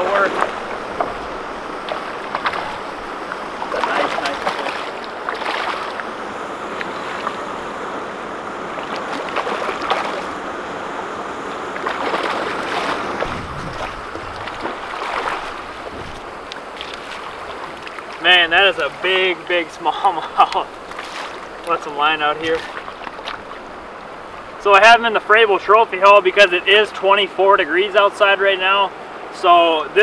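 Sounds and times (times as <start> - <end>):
fish splashing in river water: 0.0 - 6.1, 6.7 - 7.5, 8.6 - 10.5, 11.5 - 21.8, 22.4 - 24.3.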